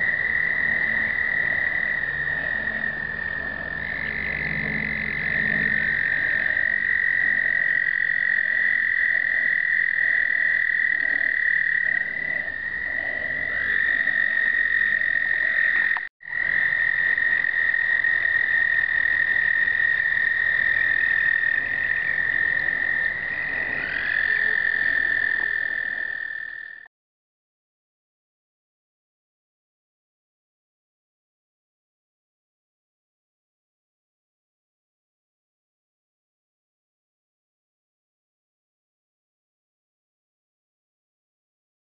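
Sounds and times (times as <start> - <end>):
toads trilling: 0.0 - 26.9.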